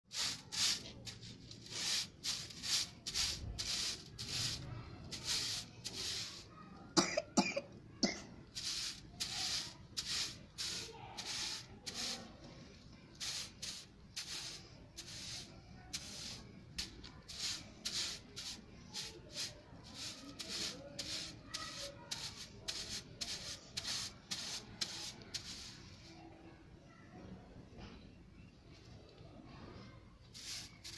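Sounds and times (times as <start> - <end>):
broom swishing on concrete: 0.1 - 6.5, 8.5 - 12.5, 13.1 - 26.2, 30.3 - 30.9.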